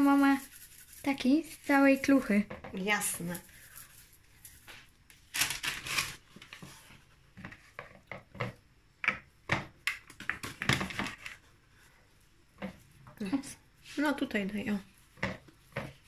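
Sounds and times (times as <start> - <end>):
hands working dough in bowl: 0.0 - 4.9, 12.6 - 16.0.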